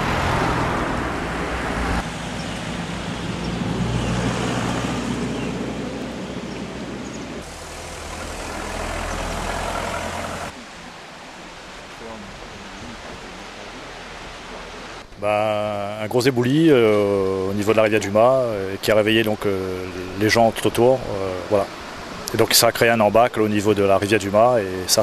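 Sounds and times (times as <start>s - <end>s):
traffic rumble and hiss: 0.0s - 25.0s.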